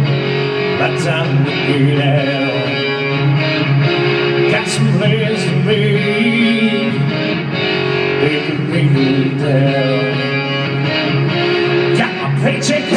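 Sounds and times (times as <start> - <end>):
live band with guitar: 0.0 - 12.9
lead vocal singing: 0.8 - 3.3, 4.4 - 7.3, 8.1 - 10.8, 11.9 - 12.9.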